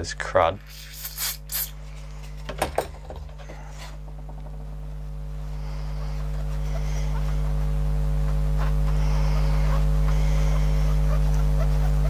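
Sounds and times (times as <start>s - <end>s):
aerosol spray hissing: 0.6s - 1.8s
low hum: 1.7s - 12.0s.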